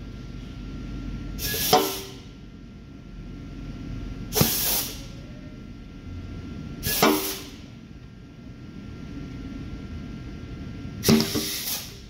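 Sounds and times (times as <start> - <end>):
compressed air hiss: 1.4 - 2.2, 4.3 - 5.0, 6.8 - 7.6, 11.0 - 12.0
sharp pneumatic knock: 1.4 - 2.2, 4.3 - 5.0, 6.8 - 7.6, 11.0 - 12.0.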